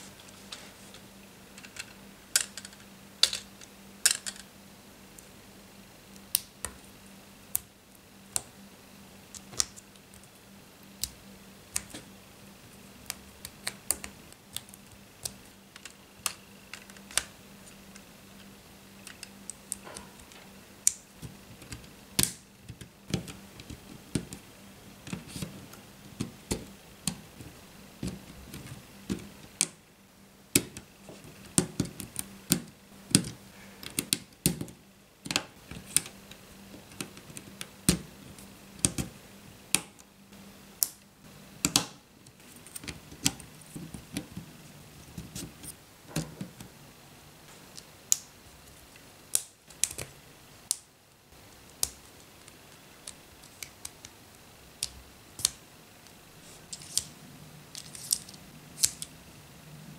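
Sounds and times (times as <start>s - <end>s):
faint low hum: 0.0s - 59.9s.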